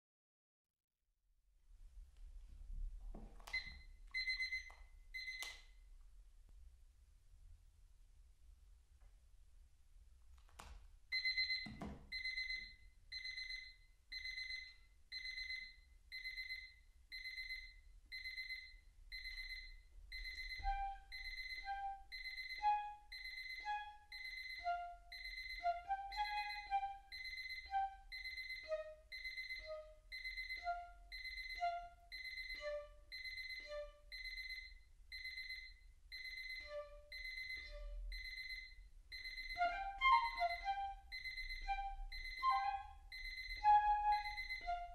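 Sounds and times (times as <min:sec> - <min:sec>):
alarm clock beeping: 0:03.5 - 0:05.5, 0:11.1 - 0:44.9
piccolo notes: 0:20.6 - 0:34.1, 0:39.4 - 0:44.9.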